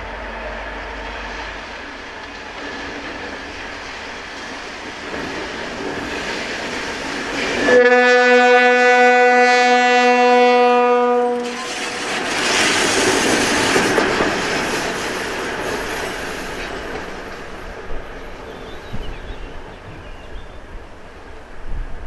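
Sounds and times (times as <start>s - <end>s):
diesel locomotive engine: 0.0s - 22.0s
locomotive horn blast: 7.6s - 12.3s.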